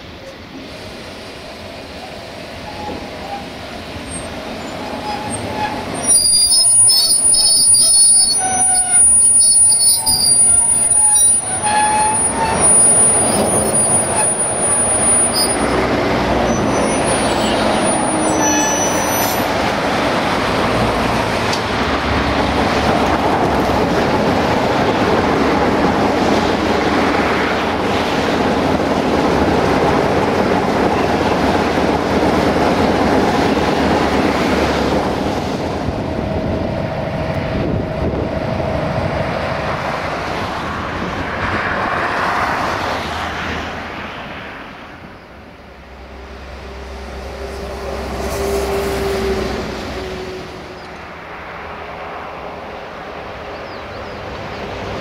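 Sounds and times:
train wheels rolling on rails: 0.0 - 55.0
high-pitched wheel squeal: 2.6 - 15.8, 16.4 - 19.5.

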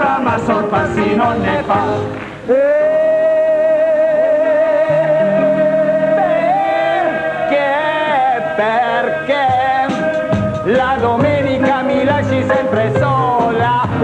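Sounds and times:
musical accompaniment: 0.0 - 14.0
person singing long high note: 2.5 - 10.4.

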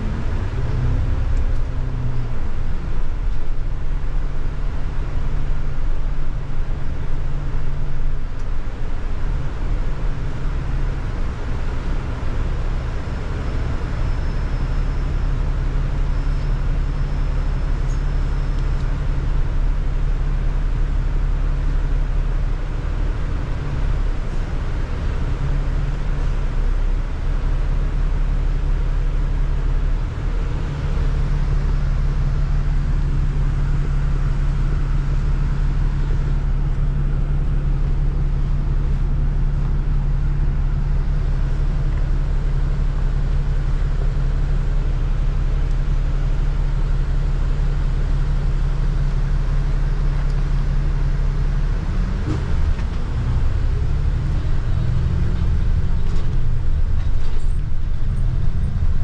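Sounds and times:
bus engine drone: 0.0 - 59.0
road noise: 0.0 - 59.0.

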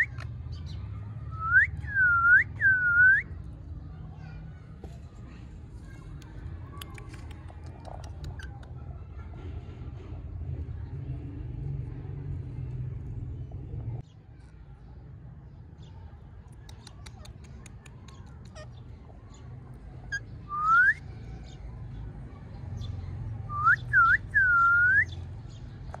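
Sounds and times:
faint clicks: 6.0 - 8.8
whistled notes: 20.5 - 21.0.

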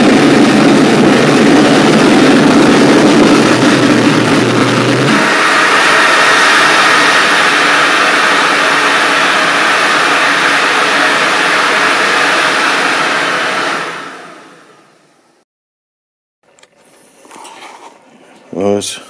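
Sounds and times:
air blower rushing: 0.0 - 15.4.

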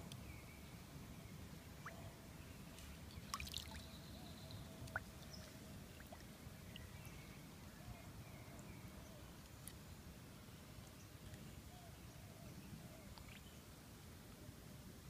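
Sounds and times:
water sloshing and trickling: 2.8 - 7.0.

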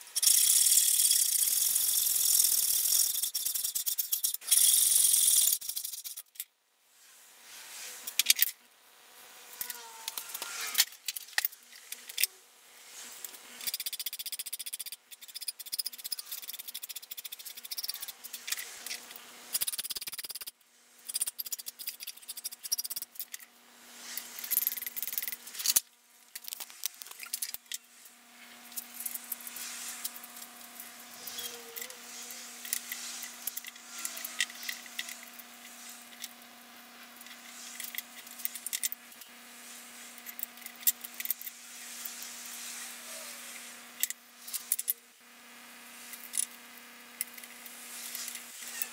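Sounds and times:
parts clicking and rattling: 0.1 - 6.6, 8.1 - 8.6, 9.6 - 12.3, 13.1 - 23.5, 24.1 - 27.9, 28.5 - 39.4, 40.1 - 42.3, 44.0 - 45.0.

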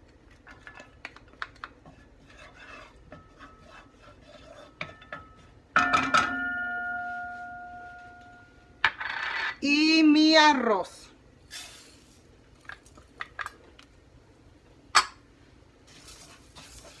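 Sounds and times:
wooden spoon scraping bowl: 1.6 - 5.6, 15.9 - 17.0
spoon tapping with ringing tone: 5.8 - 8.5.

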